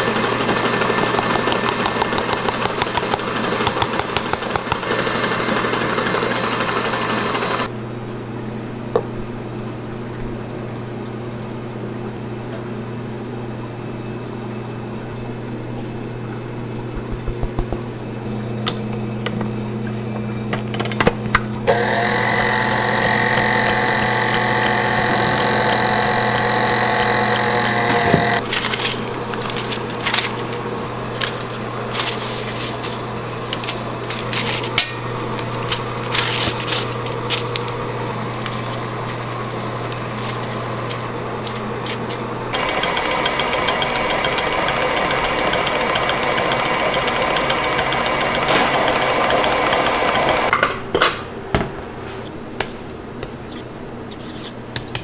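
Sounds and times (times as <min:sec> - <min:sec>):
electric mixer motor whining: 0:00.0 - 0:07.7, 0:21.7 - 0:50.5
parchment paper rustling: 0:28.4 - 0:42.3.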